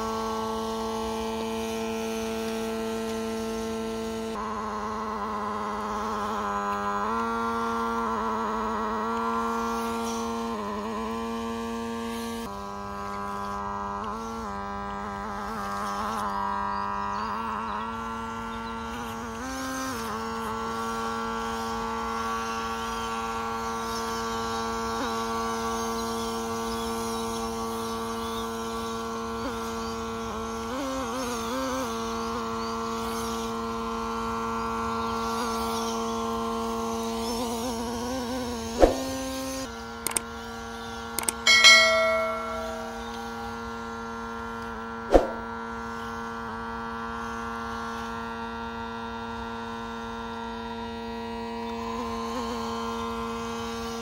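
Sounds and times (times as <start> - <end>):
sharp clicks: 41.2 - 41.5
brief higher tone: 41.5 - 43.4.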